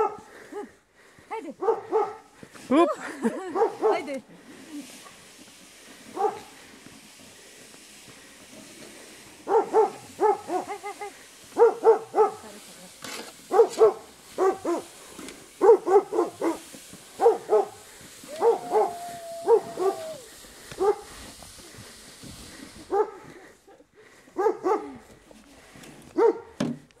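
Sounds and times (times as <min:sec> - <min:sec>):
dog barking: 0:01.6 - 0:02.3, 0:03.5 - 0:04.1, 0:06.2 - 0:06.5, 0:09.5 - 0:10.8, 0:11.6 - 0:12.4, 0:13.5 - 0:14.9, 0:15.6 - 0:16.6, 0:17.2 - 0:17.8, 0:18.4 - 0:20.0, 0:20.8 - 0:21.1, 0:22.9 - 0:23.2, 0:24.4 - 0:25.0, 0:26.2 - 0:26.5.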